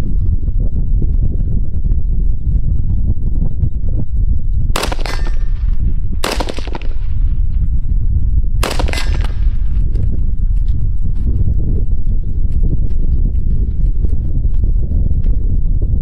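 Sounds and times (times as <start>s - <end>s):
wind rumble on microphone: 0.0s - 16.0s
rifle shots echoing: 4.8s - 7.3s, 8.6s - 9.8s.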